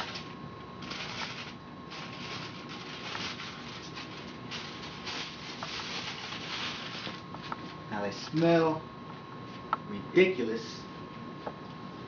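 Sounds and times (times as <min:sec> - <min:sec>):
aluminium foil crinkling: 0:00.0 - 0:07.3.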